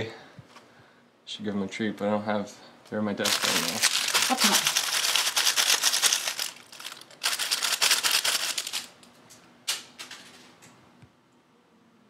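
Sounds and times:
plastic toy crackling: 0:03.2 - 0:09.1.

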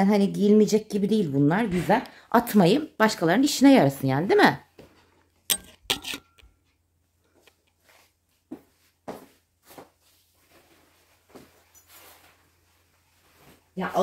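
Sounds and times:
soft footsteps: 0:07.3 - 0:13.8
clothes rustling: 0:07.3 - 0:14.0.

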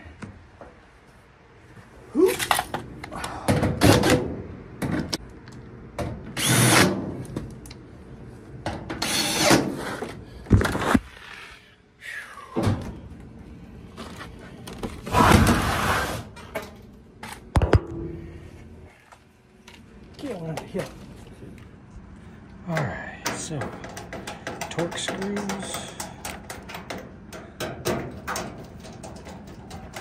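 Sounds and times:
metal panel knocking and clattering: 0:23.3 - 0:30.0.

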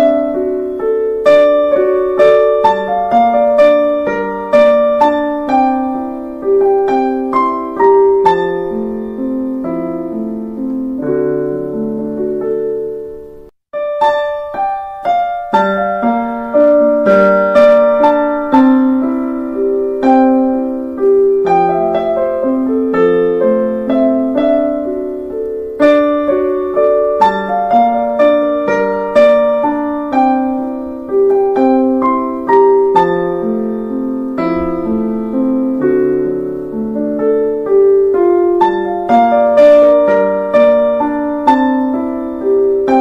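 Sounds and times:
gentle piano melody: 0:00.0 - 0:43.0.

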